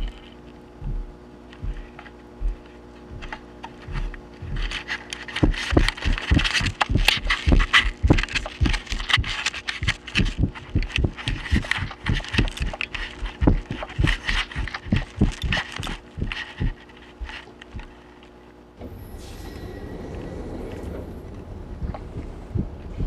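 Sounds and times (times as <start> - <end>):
steady electrical hum: 0.0 - 23.0
footsteps running on carpet: 0.8 - 18.0.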